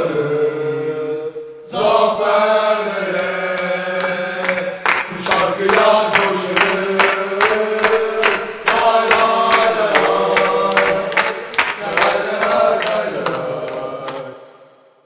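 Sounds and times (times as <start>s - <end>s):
crowd chanting in unison: 0.0s - 15.0s.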